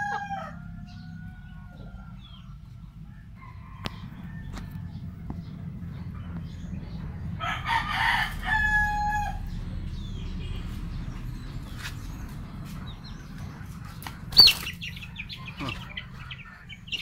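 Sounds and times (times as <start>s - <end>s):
rooster crowing: 0.0s - 2.2s, 3.0s - 5.1s, 7.4s - 9.6s.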